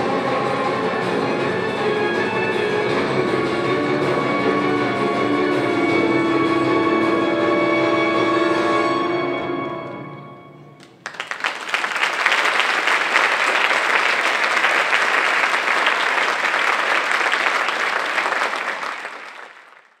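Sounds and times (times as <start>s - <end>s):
orchestral music: 0.0s - 11.0s
audience applauding: 10.8s - 20.0s.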